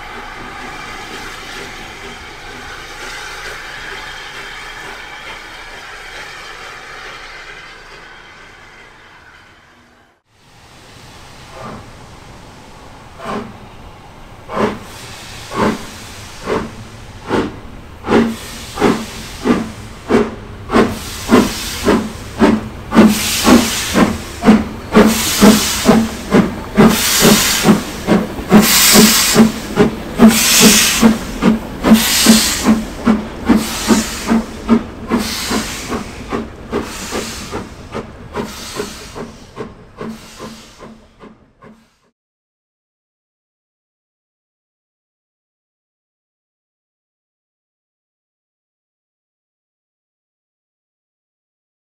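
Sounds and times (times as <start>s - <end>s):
steam locomotive exhaust beats: 13.1s - 42.1s.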